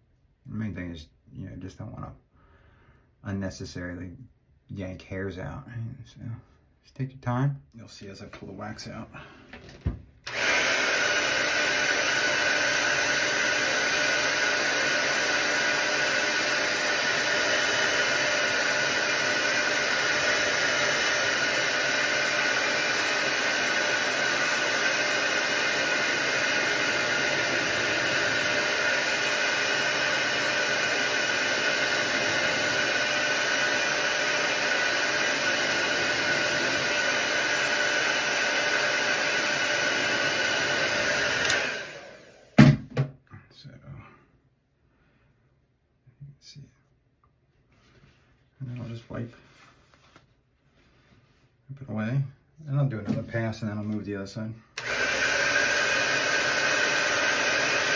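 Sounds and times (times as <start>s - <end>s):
hair dryer blowing: 9.6s - 42.8s, 54.7s - 57.9s.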